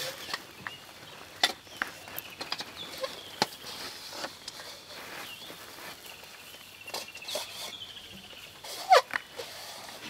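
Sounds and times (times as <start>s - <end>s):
twigs snapping and cracking: 0.1s - 3.7s.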